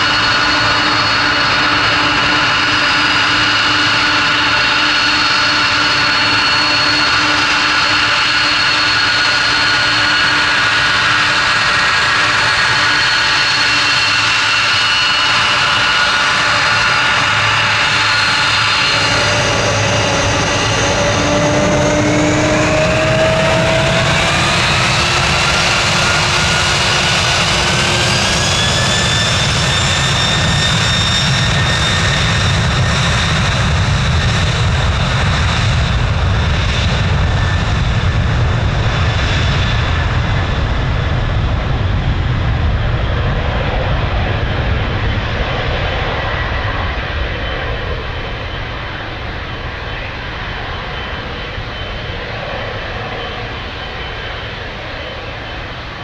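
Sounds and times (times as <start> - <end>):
jet engines spooling up: 0.0 - 56.0
deep rumble: 15.4 - 55.5.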